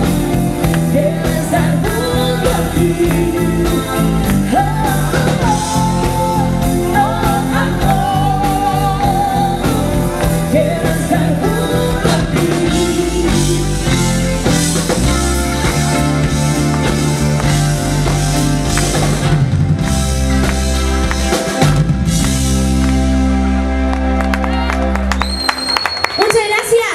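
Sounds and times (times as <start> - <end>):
drum kit: 0.0 - 23.8
electric guitars: 0.0 - 26.1
keyboard: 0.0 - 26.8
woman singing: 0.8 - 14.3.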